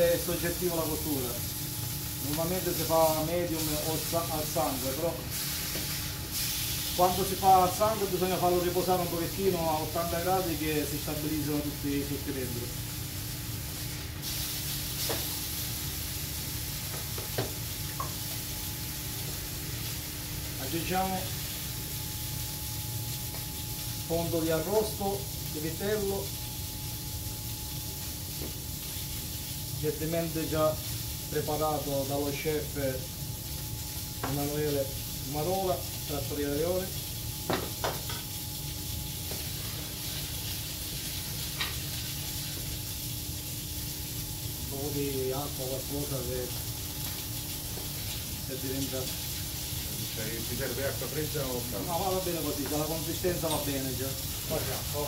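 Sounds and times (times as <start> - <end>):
meat sizzling in a frying pan: 0.0 - 55.0.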